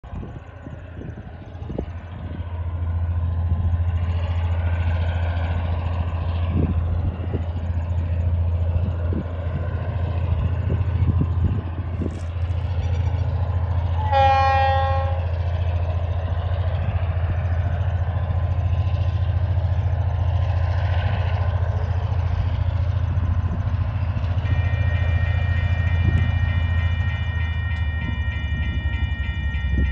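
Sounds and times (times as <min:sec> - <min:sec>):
diesel locomotive engine drone: 0:00.0 - 0:29.9
train horn blast: 0:13.9 - 0:15.4, 0:24.4 - 0:26.3.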